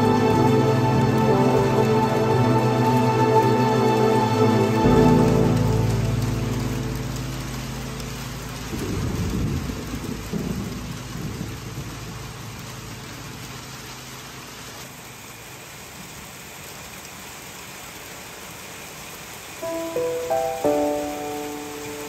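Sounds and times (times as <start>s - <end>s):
held music chord: 0.0s - 11.9s, 19.6s - 22.0s
steady rain falling: 0.0s - 22.0s
low roll of thunder: 4.9s - 14.0s.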